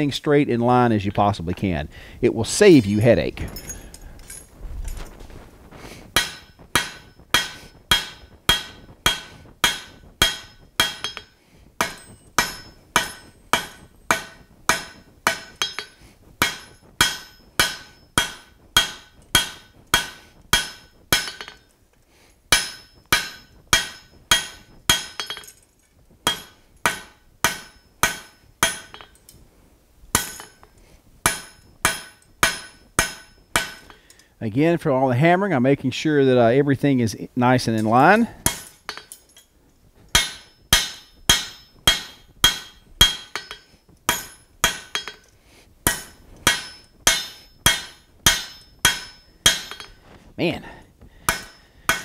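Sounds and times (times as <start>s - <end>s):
hammer striking steel on anvil: 6.2s - 21.7s, 22.5s - 25.6s, 26.2s - 29.2s, 30.1s - 34.2s, 37.8s - 39.4s, 40.1s - 50.1s, 51.2s - 52.0s.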